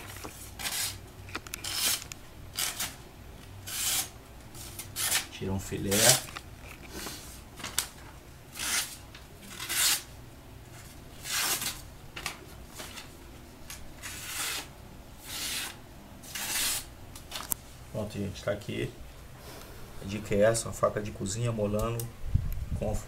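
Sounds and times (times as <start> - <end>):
knife slicing paper: 0.4 - 1.0, 1.6 - 2.0, 2.6 - 3.0, 3.6 - 5.3, 8.5 - 10.1, 11.2 - 11.8, 14.0 - 16.9.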